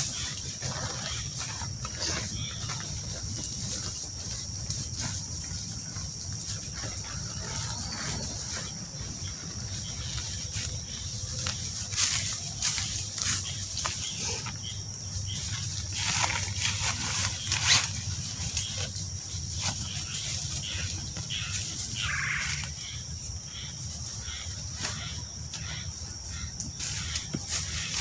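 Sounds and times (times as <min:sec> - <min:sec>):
plastic bag rustling: 0:00.0 - 0:22.2
footsteps in dry leaves: 0:00.0 - 0:28.0.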